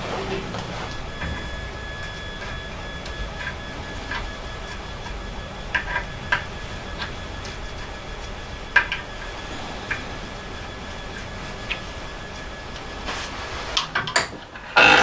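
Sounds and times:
faint high whine: 0.0 - 15.0.

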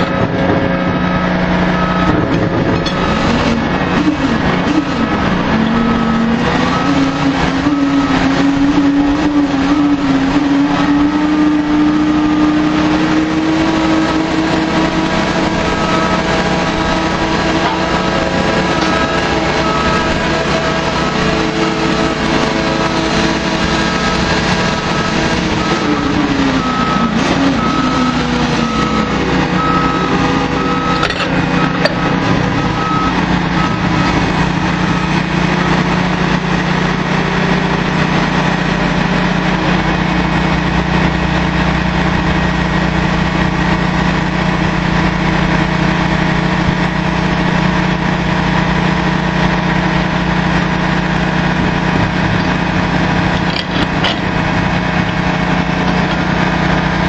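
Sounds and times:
drilling rig engine drone: 0.0 - 57.0
high beep: 1.1 - 2.2
short falling whine: 13.7 - 38.0.

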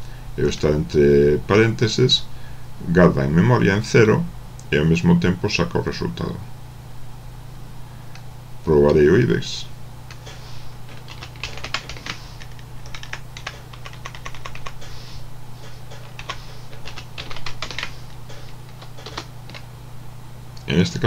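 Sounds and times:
steady low hum: 0.0 - 21.0
computer keyboard typing: 10.9 - 14.9, 15.9 - 19.7.

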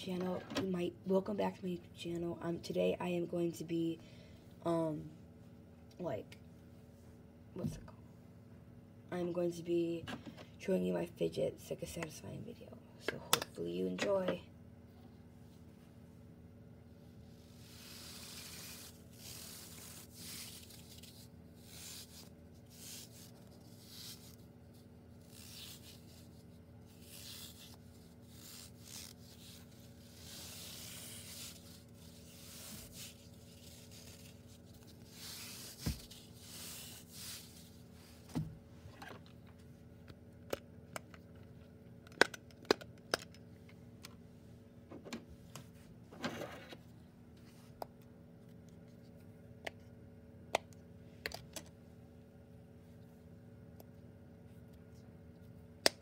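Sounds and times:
squishy toy swishing and rubbing: 17.3 - 38.3.

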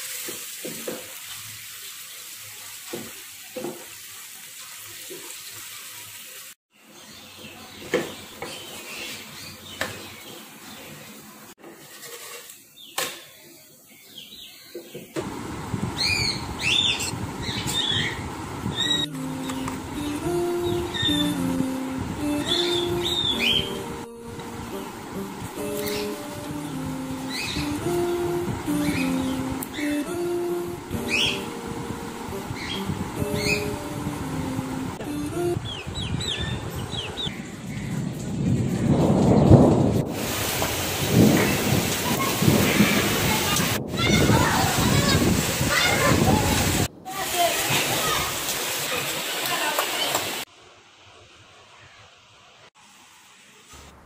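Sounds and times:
steady storm hiss: 15.2 - 49.6
small birds chirping: 15.9 - 19.8, 35.6 - 38.0
thunder rumbling: 37.5 - 47.0.

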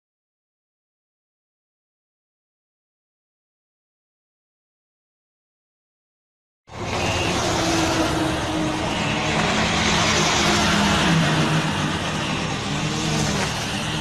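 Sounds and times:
truck engine hum: 6.7 - 14.0.

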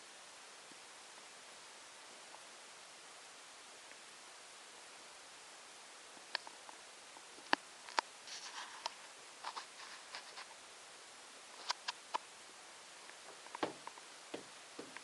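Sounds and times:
kittens scuffling: 13.1 - 15.0
paws and claws tapping on floor: 13.4 - 15.0.

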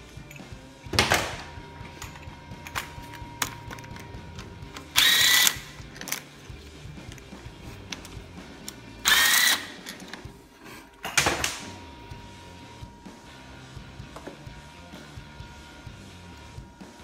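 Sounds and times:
electric ratchet motor whine: 1.8 - 5.9, 9.0 - 9.8.

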